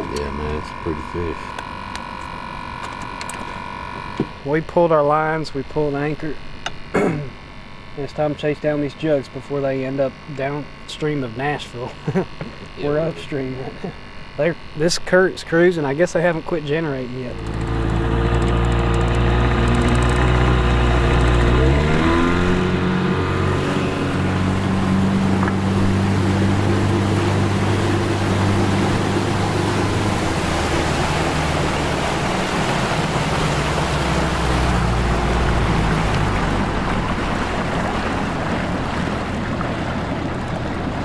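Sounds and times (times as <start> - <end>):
water rushing: 0.0 - 1.5, 17.3 - 41.0
boat motor running: 0.0 - 41.0
wind: 0.0 - 41.0.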